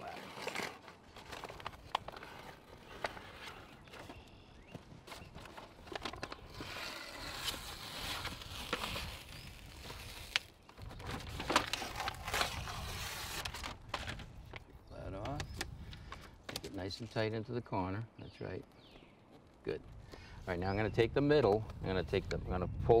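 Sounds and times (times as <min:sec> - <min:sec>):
release paper crinkling: 0:05.0 - 0:14.7.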